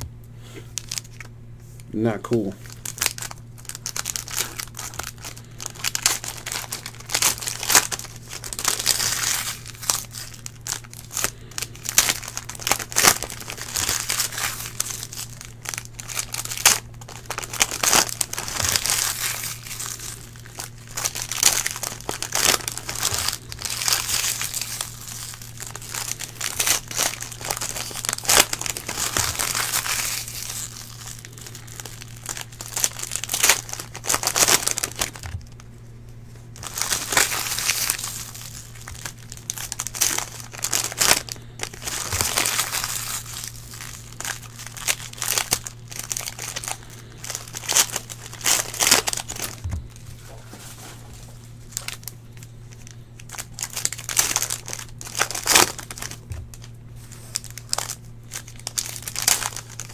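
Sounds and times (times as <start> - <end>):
low electrical hum: 0.0 - 59.9
foil packs crinkling and tearing: 0.7 - 1.3, 2.0 - 35.8, 36.4 - 59.9.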